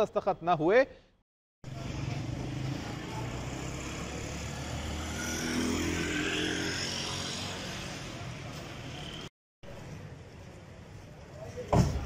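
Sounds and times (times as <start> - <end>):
car and motorcycle engines: 1.7 - 11.6
vehicle passing: 1.8 - 8.2.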